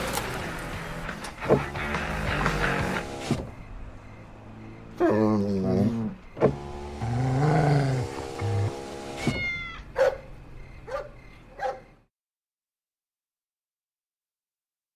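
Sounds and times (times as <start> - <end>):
cat meowing: 9.2 - 9.9.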